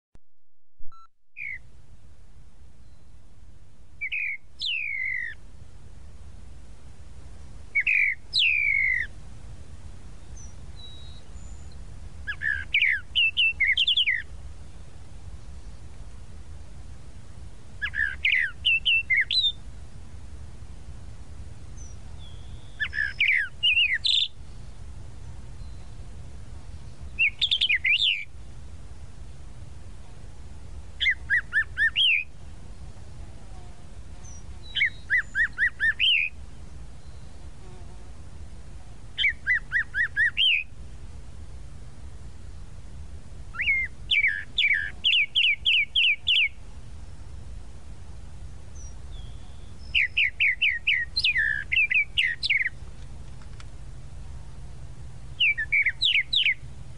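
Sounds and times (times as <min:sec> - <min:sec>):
steady low hum: 0:00.9 - 0:56.9
mockingbird singing: 0:01.4 - 0:01.7, 0:04.0 - 0:05.4, 0:07.7 - 0:09.1, 0:10.2 - 0:14.3, 0:17.8 - 0:19.6, 0:21.8 - 0:24.8, 0:26.7 - 0:28.3, 0:31.0 - 0:32.3, 0:34.2 - 0:36.4, 0:39.2 - 0:40.7, 0:43.5 - 0:46.6, 0:48.8 - 0:52.8, 0:55.4 - 0:56.7.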